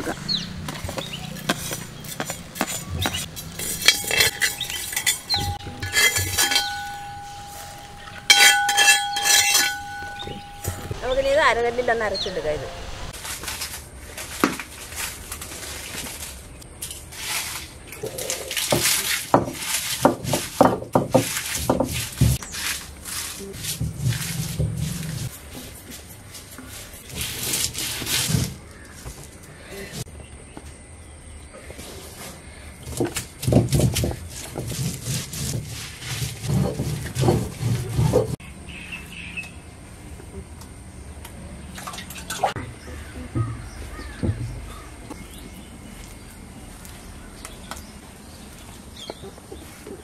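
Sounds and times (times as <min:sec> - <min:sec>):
stone roller scraping on grinding stone: 0:01.0 - 0:11.3, 0:17.2 - 0:25.8, 0:31.8 - 0:38.4
grinding stone scraping: 0:01.3 - 0:11.4
bird chirping: 0:04.3 - 0:05.9, 0:06.5 - 0:12.5.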